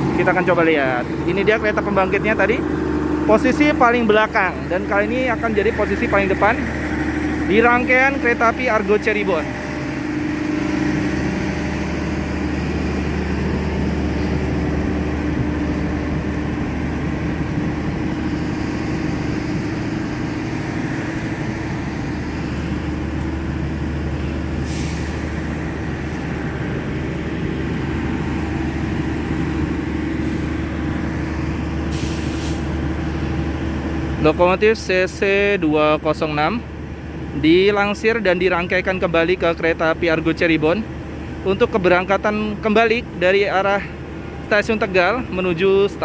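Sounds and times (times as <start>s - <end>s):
diesel generator droning: 0.0s - 46.0s
short hisses of air: 24.6s - 25.2s, 31.9s - 32.7s.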